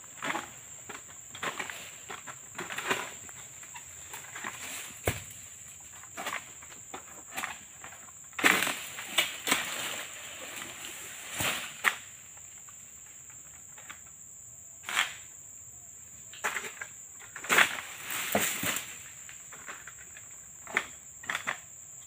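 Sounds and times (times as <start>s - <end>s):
stiff palm leaves rustling: 0.0s - 13.9s, 16.4s - 21.5s
palm fronds snapping: 8.4s - 10.2s, 11.3s - 12.2s.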